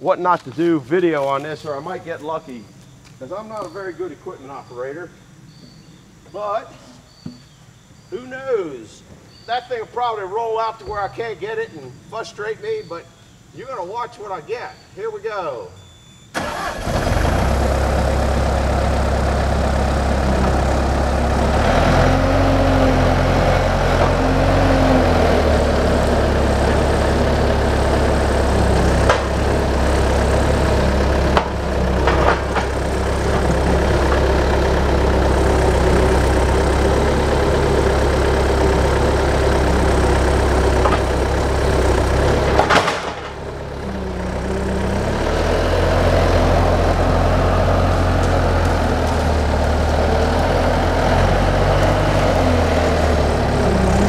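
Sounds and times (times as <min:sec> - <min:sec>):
diesel engine running: 0:16.4 - 0:54.0.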